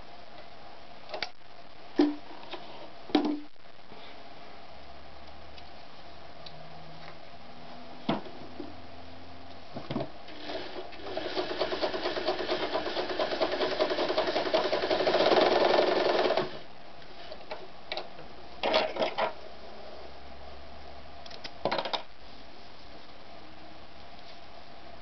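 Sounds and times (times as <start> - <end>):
sewing machine stitching: 10.3 - 16.6.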